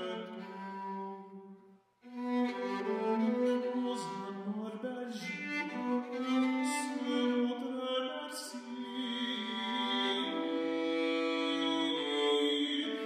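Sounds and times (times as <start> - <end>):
bowed vielle: 0.0 - 1.5, 2.1 - 7.6, 8.5 - 13.0
tenor singing: 2.6 - 13.0.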